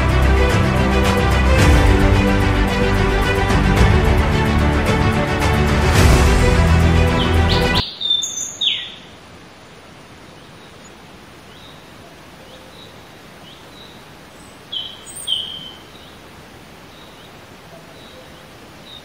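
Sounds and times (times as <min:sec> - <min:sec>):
bird chirping: 0:07.2 - 0:09.2, 0:12.4 - 0:16.2, 0:16.9 - 0:19.0.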